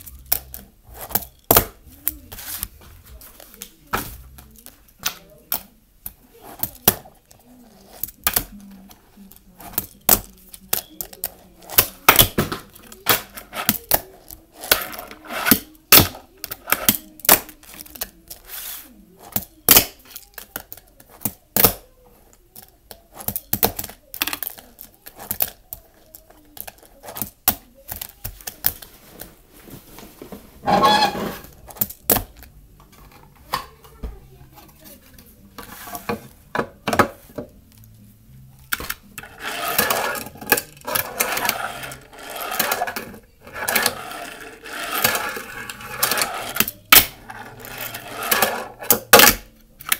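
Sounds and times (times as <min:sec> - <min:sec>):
small wheels rolling: 0:39.2 - 0:48.9.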